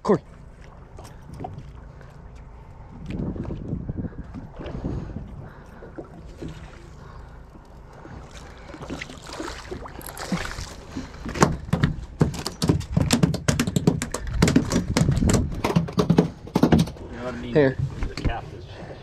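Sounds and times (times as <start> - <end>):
water noise: 0.0 - 17.8
wind: 0.0 - 19.0
fish flopping on deck: 5.9 - 17.0.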